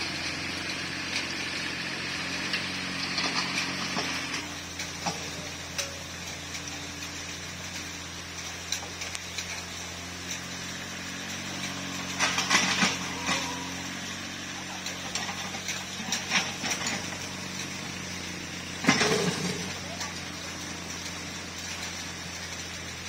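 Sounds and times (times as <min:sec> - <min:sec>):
diesel engine running: 0:00.0 - 0:23.0
rattling and clatter: 0:02.6 - 0:23.0.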